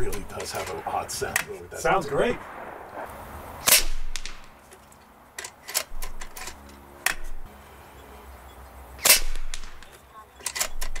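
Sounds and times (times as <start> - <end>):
air rifle shot: 2.1 - 4.6, 9.0 - 9.9
air rifle action clicks: 2.9 - 7.5, 9.0 - 11.0.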